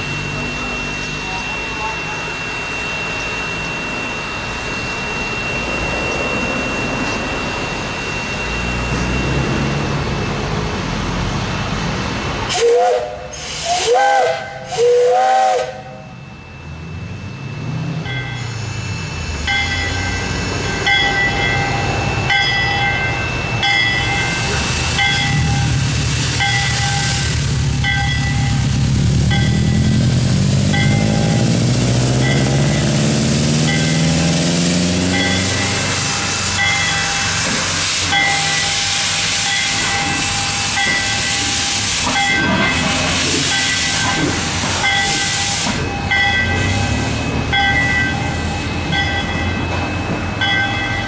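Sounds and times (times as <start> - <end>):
bell-like ringing tone: 0.0 - 11.0, 15.9 - 37.4, 38.0 - 44.2, 44.8 - 51.0
steam hissing: 12.4 - 16.0, 23.9 - 50.0
steam whistle blasts: 12.5 - 16.2, 30.7 - 48.5.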